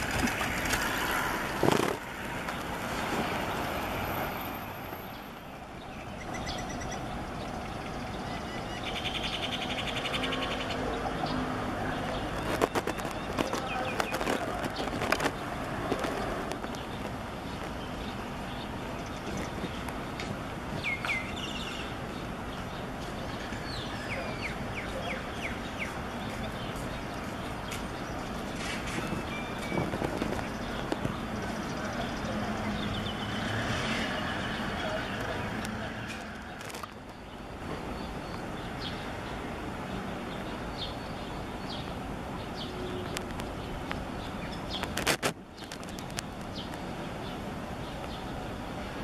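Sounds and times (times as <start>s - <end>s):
street traffic noise: 0.0s - 49.0s
bird chirping: 5.1s - 19.8s, 20.8s - 39.5s.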